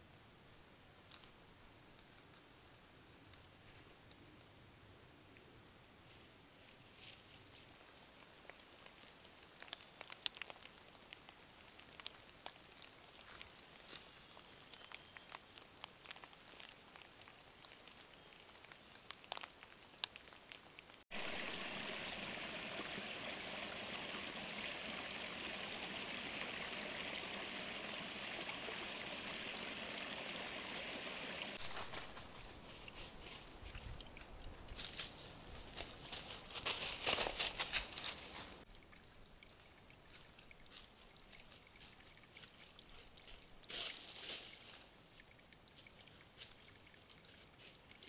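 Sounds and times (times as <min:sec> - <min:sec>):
ticks and rustles in dry leaves: 0:31.6 - 0:38.7, 0:40.7 - 0:45.1.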